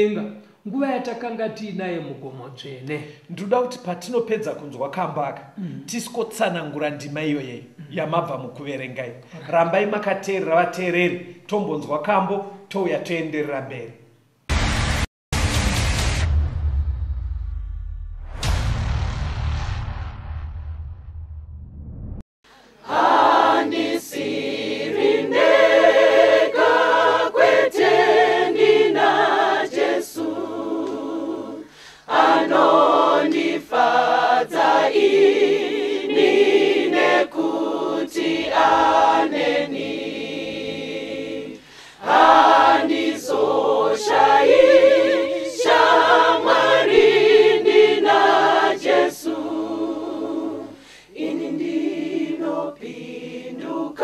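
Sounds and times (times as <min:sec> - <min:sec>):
choir singing gospel: 0:22.5 - 0:54.0.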